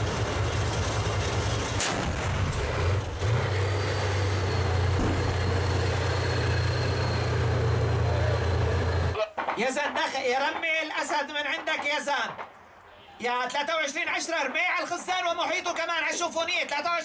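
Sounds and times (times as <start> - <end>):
tank engine deep drone: 0.0 - 9.2
sharp crack: 1.8 - 3.0, 9.2 - 12.9.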